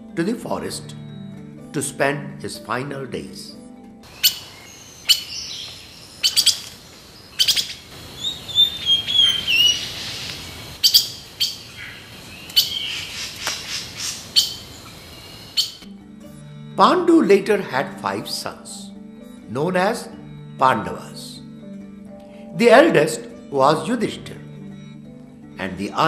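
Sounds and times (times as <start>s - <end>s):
birds chirping: 4.0s - 15.9s
bird warbling call: 4.1s - 15.9s.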